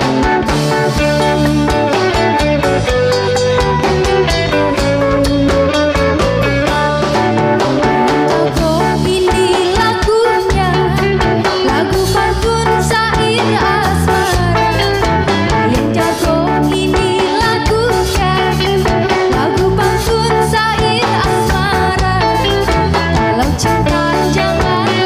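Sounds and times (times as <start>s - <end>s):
drums: 0.0s - 25.0s
electric guitars: 0.0s - 25.0s
woman singing lead: 7.8s - 25.0s.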